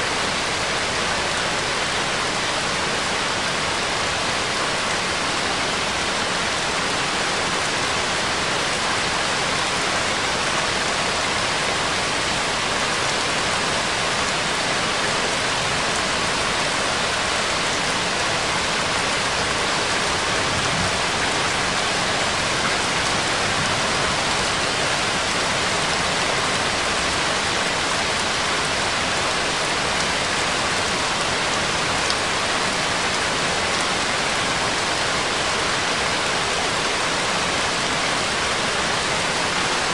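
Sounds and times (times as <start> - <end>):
steady rain-like noise: 0.0 - 39.9.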